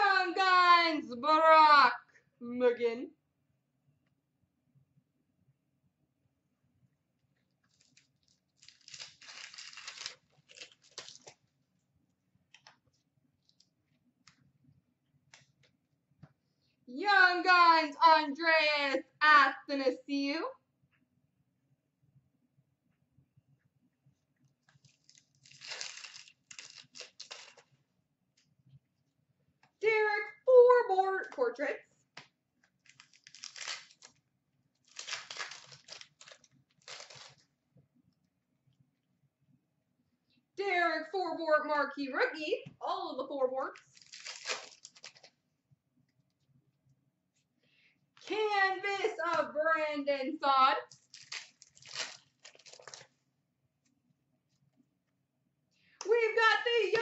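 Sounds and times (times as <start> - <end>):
card pack wrapper tearing and crinkling: 7.7 - 11.4, 24.7 - 27.6, 32.8 - 34.2, 34.8 - 37.4, 43.8 - 45.3, 51.0 - 53.1.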